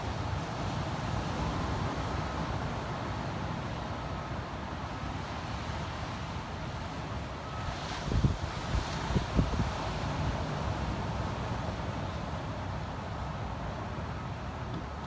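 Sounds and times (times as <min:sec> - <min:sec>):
ocean surf breaking: 0:00.0 - 0:15.0
wind rumbling on microphone: 0:07.7 - 0:11.1.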